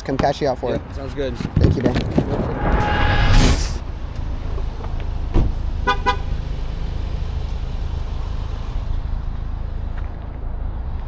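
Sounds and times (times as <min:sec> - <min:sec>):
low vehicle rumble: 0:00.7 - 0:11.0
car horn toots: 0:05.8 - 0:06.4.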